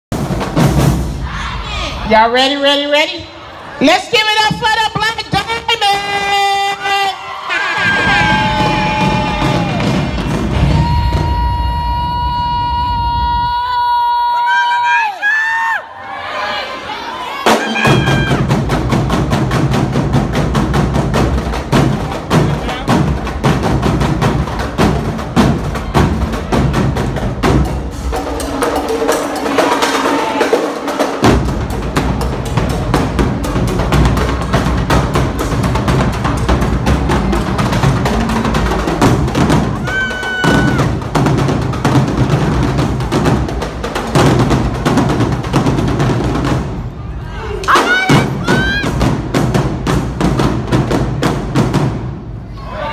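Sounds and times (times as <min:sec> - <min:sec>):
drumline playing fast cadence: 0:00.1 - 0:52.9.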